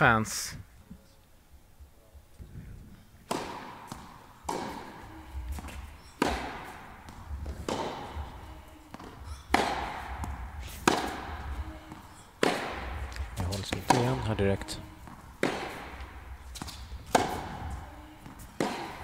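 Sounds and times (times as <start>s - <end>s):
racket striking tennis ball: 3.2s - 19.0s
tennis ball bouncing: 3.2s - 19.0s.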